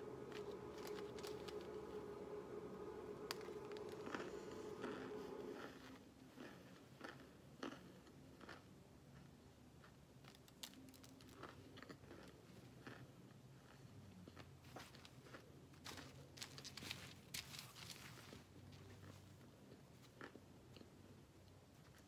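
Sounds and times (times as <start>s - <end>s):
cornstarch chunks crunching: 0.0s - 2.4s, 3.2s - 21.0s
steady hum: 0.0s - 7.5s.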